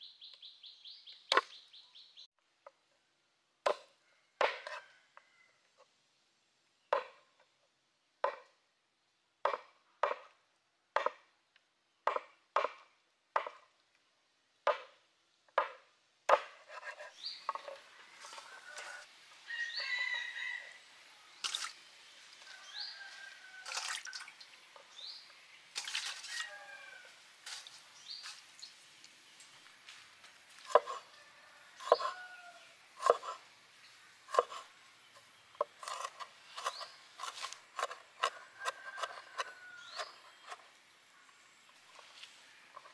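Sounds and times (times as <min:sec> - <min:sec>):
cleaver chopping on wooden board: 0:03.7 - 0:04.8, 0:09.5 - 0:10.3, 0:11.0 - 0:11.3, 0:12.1 - 0:13.6, 0:14.7 - 0:15.0, 0:15.6 - 0:17.8, 0:30.7 - 0:31.0, 0:31.8 - 0:32.1, 0:33.0 - 0:33.4, 0:34.3 - 0:34.6, 0:35.6 - 0:40.6.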